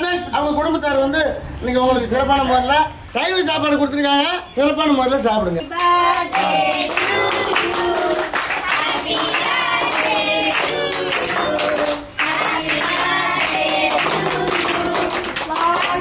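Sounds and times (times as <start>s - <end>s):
group singing: 5.7s - 16.0s
hands clapping: 5.8s - 16.0s.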